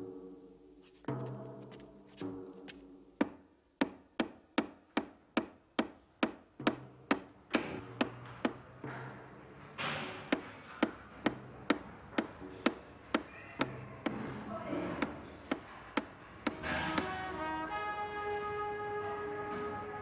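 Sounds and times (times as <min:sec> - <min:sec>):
pole knocking on ceiling: 0:03.2 - 0:09.3.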